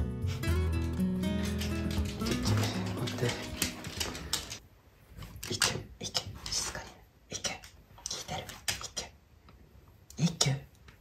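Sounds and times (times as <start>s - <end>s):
dog claws tapping on wooden floor: 1.2s - 4.6s.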